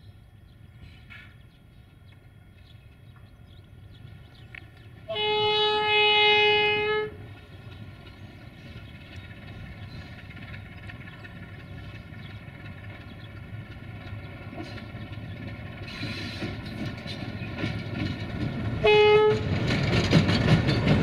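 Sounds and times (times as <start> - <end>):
diesel engine rumble: 0.3 - 21.0
locomotive horn: 5.1 - 7.2, 18.8 - 19.5.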